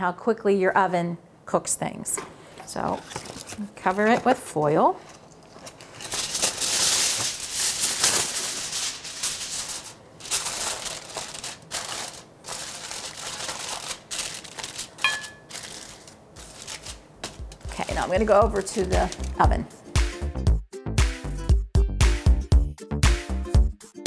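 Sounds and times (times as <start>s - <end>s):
aluminium foil crinkling: 2.8s - 19.6s.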